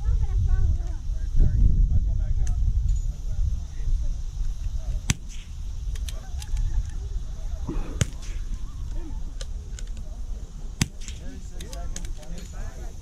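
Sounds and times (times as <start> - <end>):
rifle shots: 5.1 - 6.2, 7.9 - 8.7, 10.8 - 11.8.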